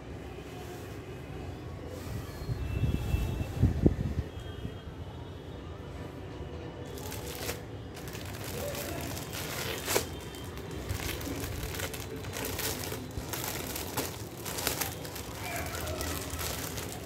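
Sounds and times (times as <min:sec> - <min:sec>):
sharp plastic crackle: 0:06.8 - 0:17.0
plastic packaging crinkling: 0:06.9 - 0:17.0.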